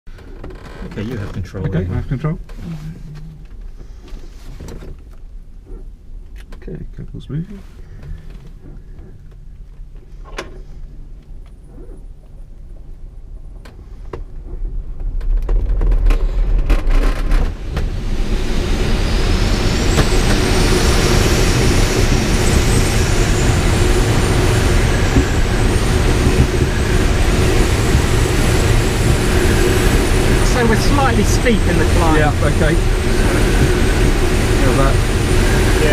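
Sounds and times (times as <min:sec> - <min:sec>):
rush of air: 0:13.8 - 0:35.9.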